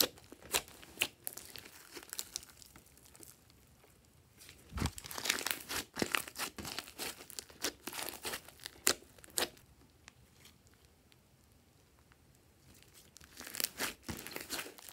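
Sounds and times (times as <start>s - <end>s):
slime crackling and popping: 0.0s - 3.6s, 4.6s - 9.6s, 12.8s - 14.9s.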